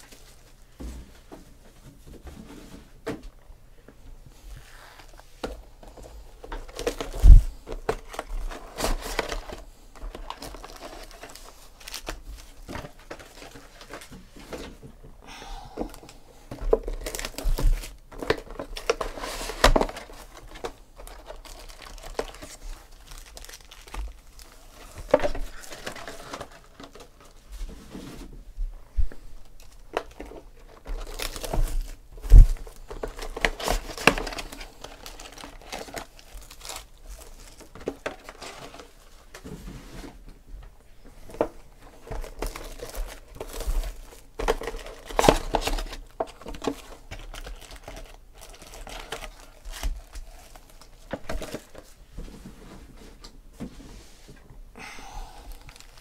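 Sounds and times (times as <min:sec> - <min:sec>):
plastic wrap crinkling: 0:04.9 - 0:14.7, 0:15.9 - 0:27.5, 0:29.2 - 0:39.4, 0:41.2 - 0:52.0, 0:55.4 - 0:56.0.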